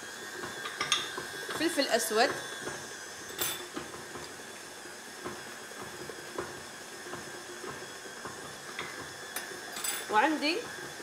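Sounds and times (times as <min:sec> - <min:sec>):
kitchen utensils clicking: 0:09.4 - 0:10.3.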